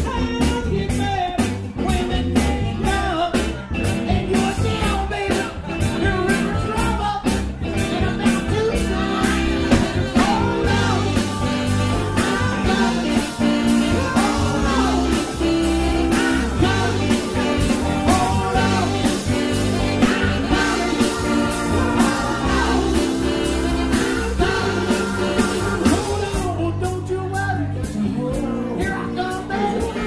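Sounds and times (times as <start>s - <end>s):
live soul band playing: 0.0s - 30.0s
person singing: 0.0s - 30.0s
horn section: 7.8s - 26.6s.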